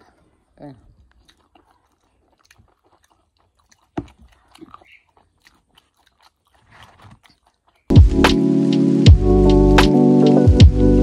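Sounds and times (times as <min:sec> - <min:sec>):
crunchy chewing: 0:00.0 - 0:07.9
wet mouth clicks: 0:00.8 - 0:07.9.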